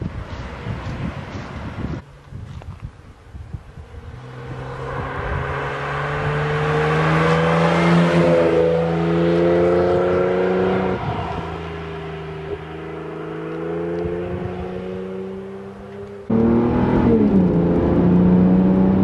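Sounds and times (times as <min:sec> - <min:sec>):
car accelerating past: 0:04.0 - 0:19.0.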